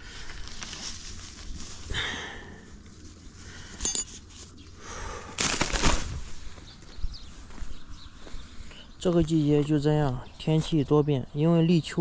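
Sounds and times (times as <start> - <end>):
tent stakes scraping ground: 0.0 - 2.0, 5.4 - 6.8
fabric rustling: 0.3 - 1.9
metallic clink: 3.8 - 4.3.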